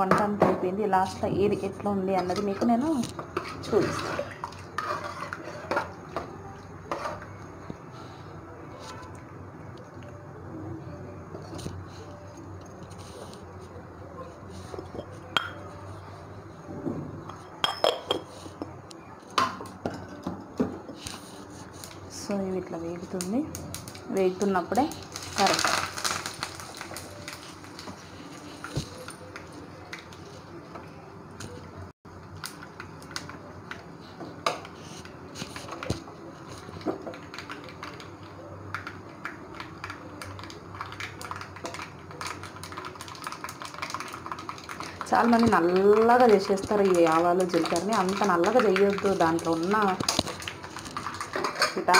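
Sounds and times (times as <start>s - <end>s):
seeds crackling in hot oil: 21.2s - 30.3s, 34.8s - 51.9s.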